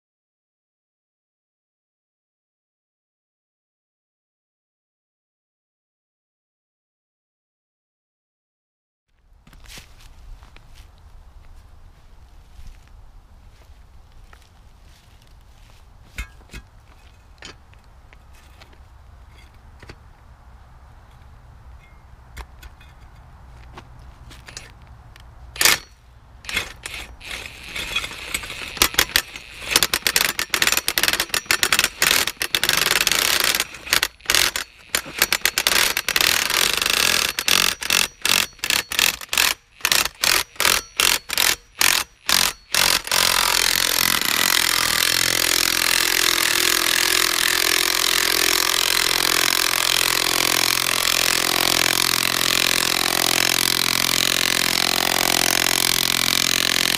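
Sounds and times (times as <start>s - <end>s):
impact tool driving ground anchor: 16.1s - 20.0s, 25.5s - 56.9s.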